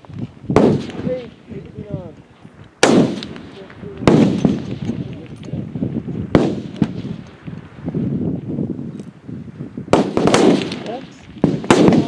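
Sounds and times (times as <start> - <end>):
rifle shot with echo: 0.5 - 1.3, 2.8 - 5.0, 6.3 - 7.2, 9.9 - 12.0.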